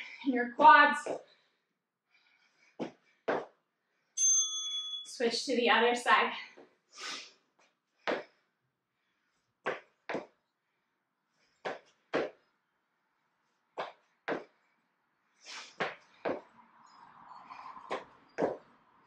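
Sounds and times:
feet thudding on floor: 2.8s - 3.5s, 11.7s - 12.4s.

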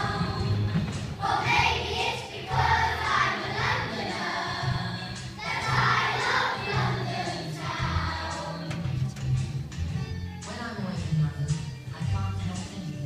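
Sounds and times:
children singing in unison: 0.0s - 9.0s.

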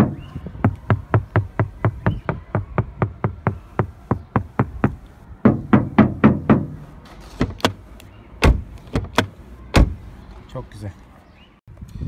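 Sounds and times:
knuckles knocking on car door: 0.0s - 6.8s.

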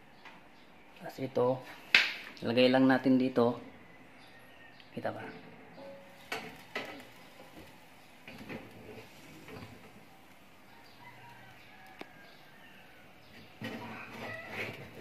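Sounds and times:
metal clicks and knocks in oven: 6.3s - 9.9s.

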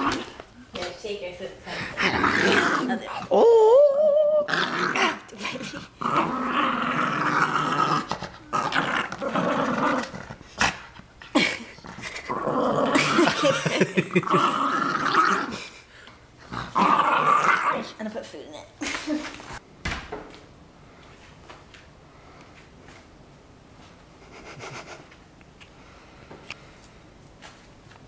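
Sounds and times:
small dog growling in play: 1.9s - 3.5s, 4.3s - 13.5s, 14.1s - 15.7s, 16.4s - 18.0s.

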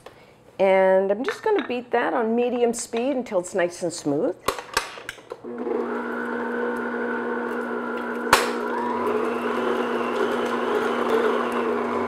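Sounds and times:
stand mixer motor running: 5.5s - 12.0s.

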